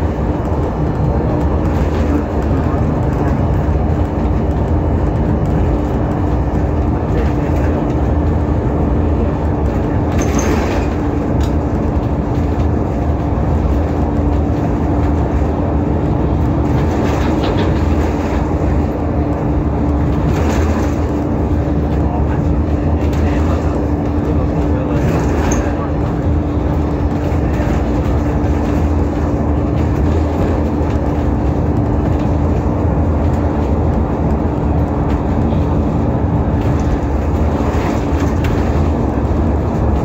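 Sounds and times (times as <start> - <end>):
bus engine and road rumble: 0.0 - 40.0
constant droning note: 0.0 - 40.0.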